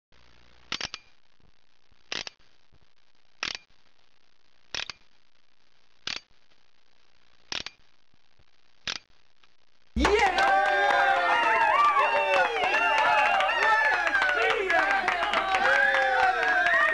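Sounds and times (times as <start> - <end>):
faint steady hiss: 0.1 - 16.9
sharp mechanical clicks: 0.6 - 1.2, 2.0 - 2.5, 3.4 - 3.8, 4.7 - 5.1, 6.0 - 6.4, 7.4 - 7.9, 8.8 - 9.2.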